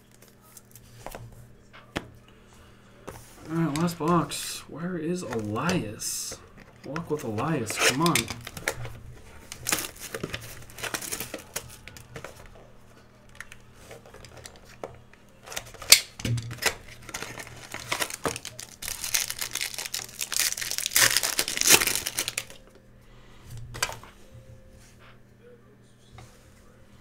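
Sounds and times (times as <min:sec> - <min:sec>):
plastic wrapper crinkling and tearing: 0:06.5 - 0:12.5, 0:15.4 - 0:22.6.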